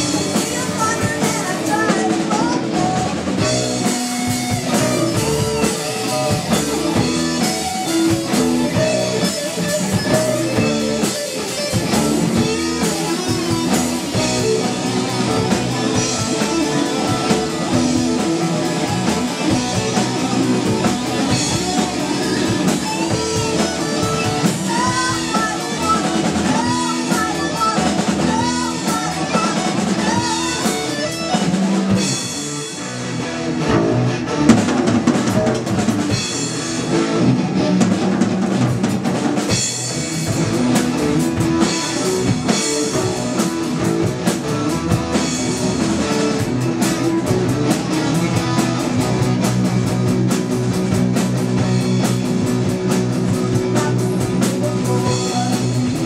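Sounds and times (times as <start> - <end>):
drum kit: 0.0 - 56.0
electric guitars: 0.0 - 56.0
woman singing: 0.2 - 3.5, 22.8 - 31.1, 53.4 - 56.0.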